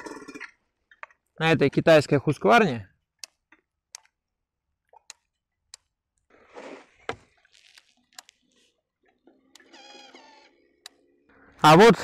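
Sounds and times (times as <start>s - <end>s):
faint clicks: 10.8s - 11.0s.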